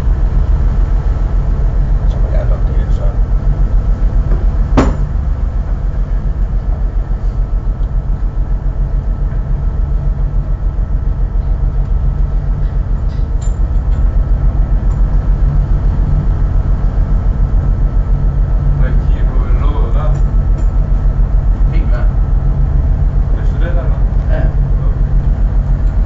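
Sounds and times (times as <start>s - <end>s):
boat diesel engine thumping: 0.0s - 26.0s
sharp knock: 4.8s - 5.1s.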